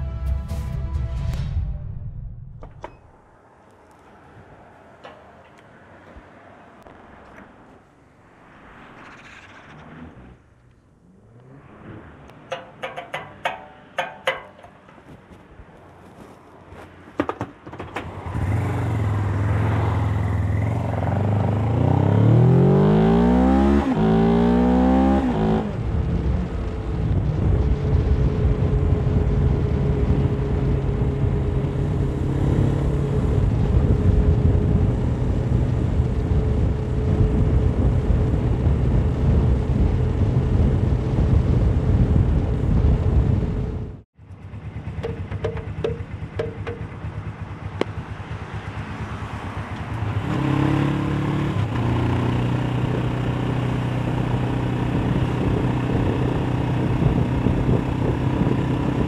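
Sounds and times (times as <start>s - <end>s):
motorcycle engine accelerating: 8.8s - 15.4s, 18.0s - 59.0s
wind rush on microphone: 25.0s - 44.0s, 51.5s - 59.0s.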